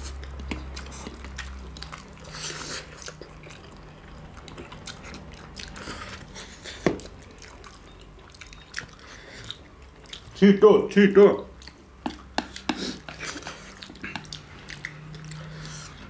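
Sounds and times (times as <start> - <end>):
chewing: 0.0 - 10.4, 11.5 - 16.0
slurping noodles: 2.0 - 3.2.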